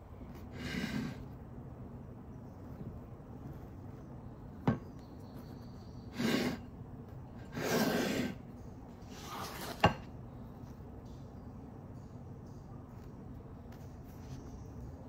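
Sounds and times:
bread rustling scrapes: 0:09.1 - 0:10.0.

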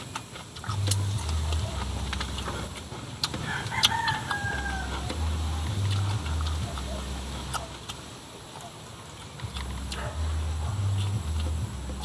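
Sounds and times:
close chewing and mouth clicks: 0:00.0 - 0:12.0
rooster crowing: 0:03.4 - 0:05.6.

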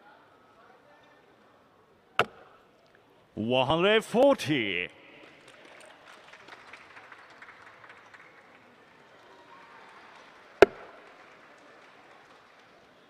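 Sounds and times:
murmur of large hall: 0:00.0 - 0:13.0.

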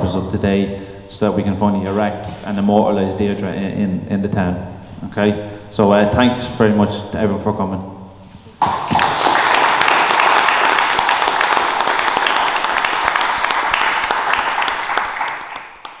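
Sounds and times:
audience applauding: 0:08.6 - 0:16.0.

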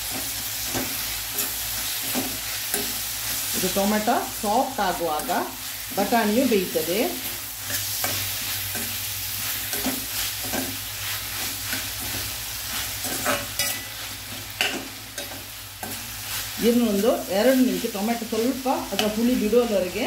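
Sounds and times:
vegetables sizzling in hot oil: 0:00.0 - 0:20.0
spoon scraping pan: 0:07.2 - 0:19.7.

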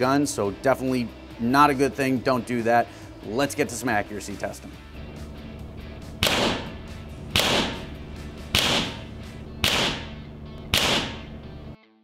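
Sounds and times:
background music: 0:00.0 - 0:12.0
air rifle shots: 0:06.2 - 0:07.9, 0:08.5 - 0:11.3.

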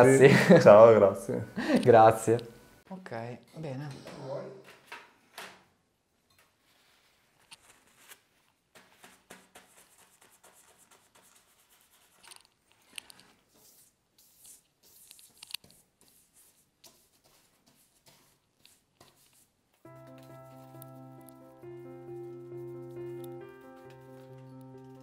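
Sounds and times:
brush strokes on paper: 0:06.6 - 0:25.0.

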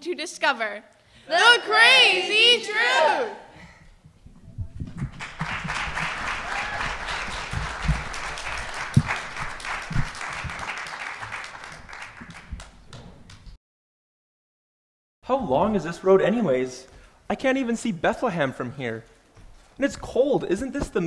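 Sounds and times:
low thuds: 0:04.0 - 0:06.2
audience applauding: 0:04.9 - 0:13.5.

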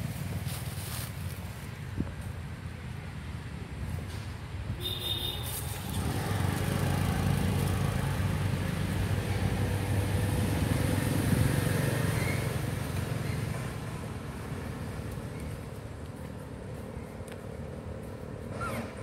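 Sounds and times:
passing vehicle engine rumble: 0:05.4 - 0:19.0.

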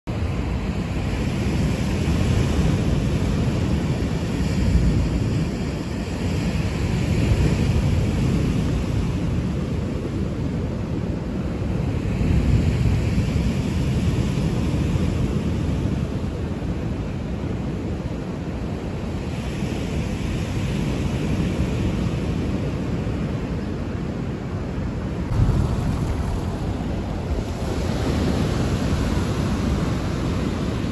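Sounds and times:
waves breaking on shore: 0:00.1 - 0:30.9
wind gusting on microphone: 0:00.1 - 0:30.9.

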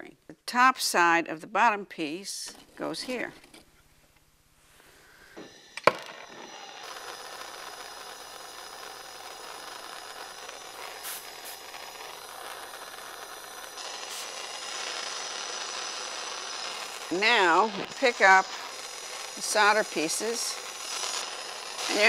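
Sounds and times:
gas torch flame hissing: 0:05.2 - 0:22.0.

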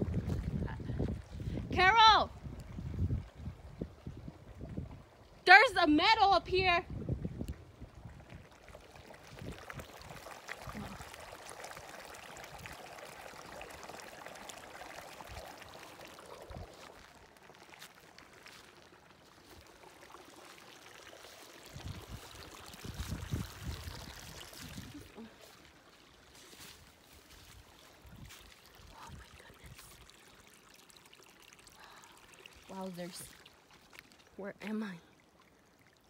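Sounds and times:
stream trickling over rocks: 0:00.0 - 0:36.0
footsteps through grass: 0:17.8 - 0:19.6, 0:26.2 - 0:28.5.

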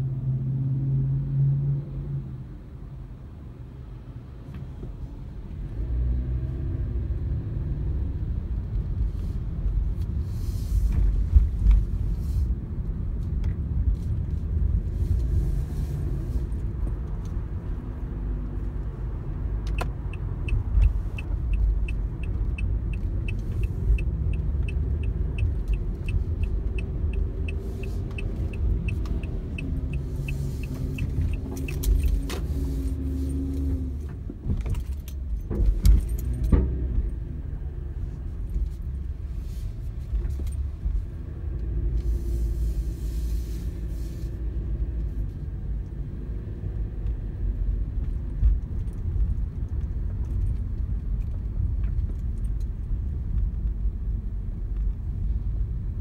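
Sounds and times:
car engine and tyres rumbling: 0:00.0 - 0:56.0
turn signal ticking: 0:19.5 - 0:32.5.

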